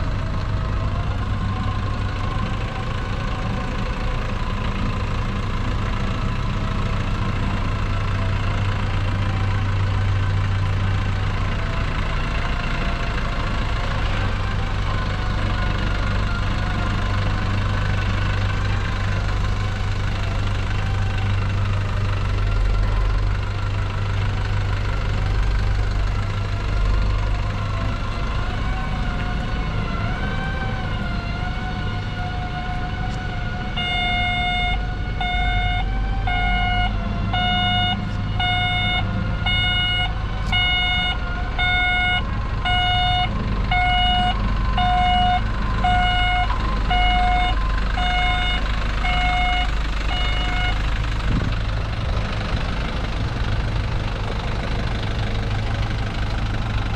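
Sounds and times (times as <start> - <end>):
diesel truck engine running: 0.0 - 56.9
reversing alarm beeping: 33.8 - 50.8.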